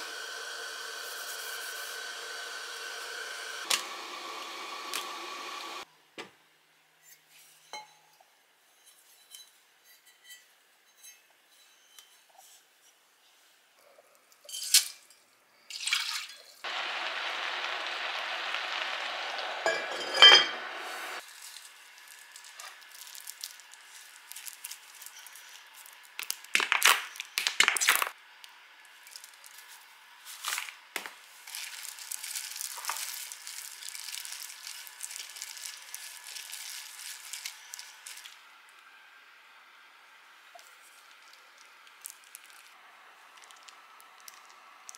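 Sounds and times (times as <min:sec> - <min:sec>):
steady hiss: 0:00.0 - 0:03.7, 0:16.6 - 0:26.0.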